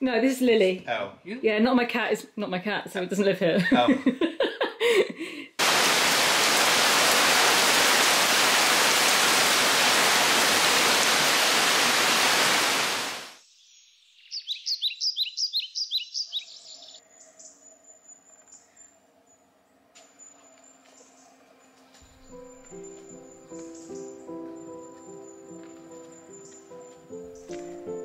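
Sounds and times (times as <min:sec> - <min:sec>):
loud rushing hiss: 0:05.6 - 0:13.4
bird chirping: 0:13.4 - 0:28.0.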